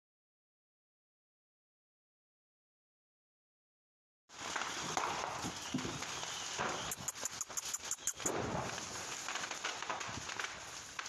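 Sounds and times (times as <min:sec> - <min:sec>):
sharp cracks: 0:04.4 - 0:11.0
hooves and footsteps on dirt: 0:04.5 - 0:11.0.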